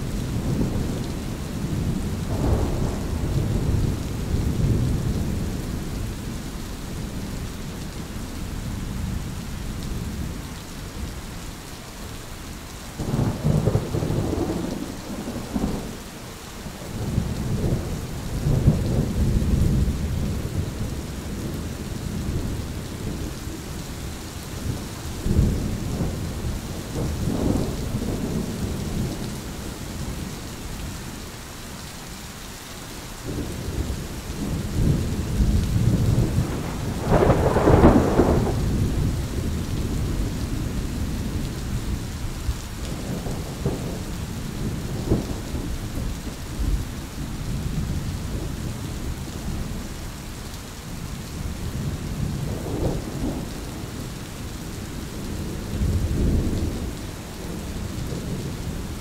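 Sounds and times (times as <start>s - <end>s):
steady rain: 0.0s - 59.0s
rolling thunder: 0.2s - 7.3s, 13.0s - 16.0s, 24.6s - 30.3s, 33.3s - 42.0s, 42.8s - 49.6s, 51.4s - 54.0s.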